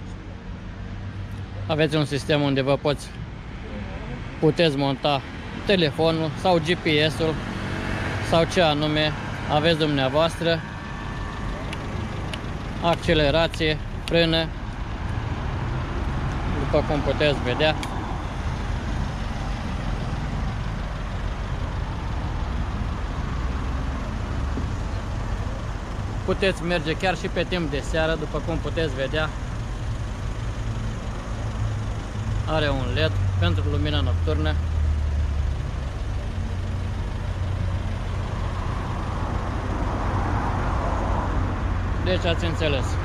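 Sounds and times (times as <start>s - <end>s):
cars passing in street: 0.0s - 43.0s
low engine rumble: 2.9s - 43.0s.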